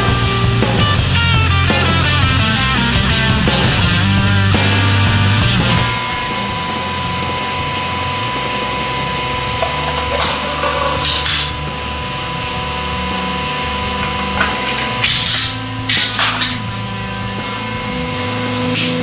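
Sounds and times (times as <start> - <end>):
metal cracking and snapping: 9.4 - 11.9, 14.0 - 17.4, 18.7 - 19.0.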